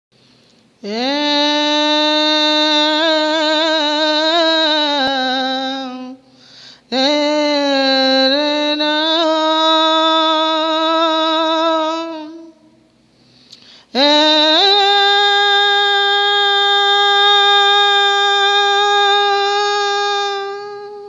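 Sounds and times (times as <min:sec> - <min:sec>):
woman singing unaccompanied: 0:00.8 - 0:12.8, 0:13.9 - 0:21.0.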